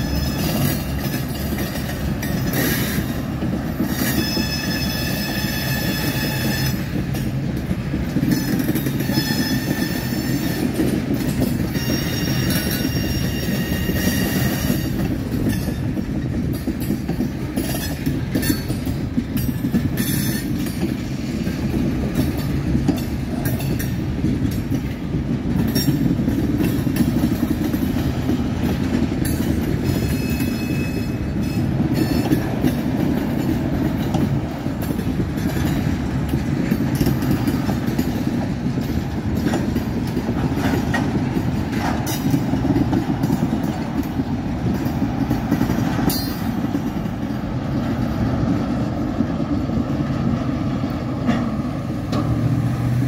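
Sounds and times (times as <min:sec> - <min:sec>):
clicking over rail joints: 0:00.0 - 0:53.0
train wheels rumbling on rail: 0:00.0 - 0:53.0
high-pitched wheel squeal: 0:03.9 - 0:06.8, 0:09.0 - 0:10.6, 0:11.7 - 0:15.0.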